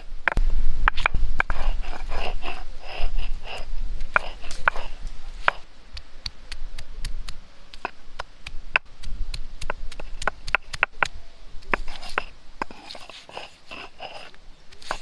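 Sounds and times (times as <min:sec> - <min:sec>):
stone roller grinding on stone: 0:00.3 - 0:05.6, 0:11.7 - 0:15.0.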